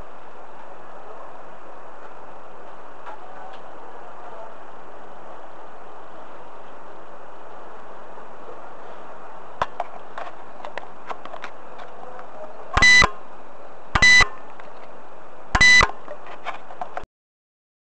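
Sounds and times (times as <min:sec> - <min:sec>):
microphone hiss: 0:00.0 - 0:17.0
short electronic beeps: 0:12.8 - 0:13.2, 0:14.0 - 0:14.4, 0:15.6 - 0:16.0.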